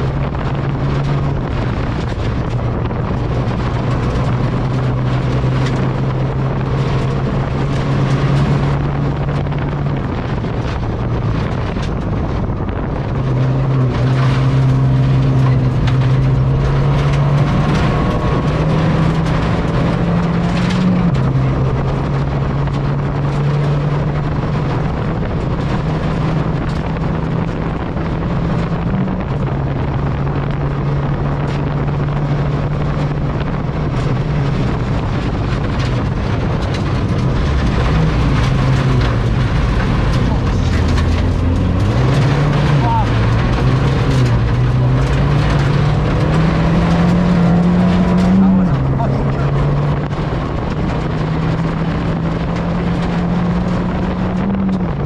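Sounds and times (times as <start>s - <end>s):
rally car engine: 0.0s - 55.0s
gravel clattering against underside: 32.5s - 55.0s.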